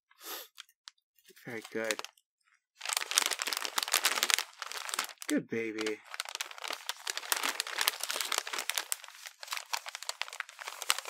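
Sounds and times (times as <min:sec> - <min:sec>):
wrapping paper crinkling: 0:01.3 - 0:02.1, 0:02.8 - 0:11.0.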